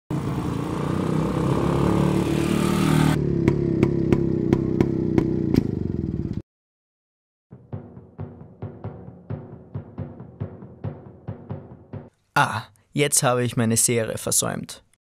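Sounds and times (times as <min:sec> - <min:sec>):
quad bike engine running: 0:00.1 - 0:06.4.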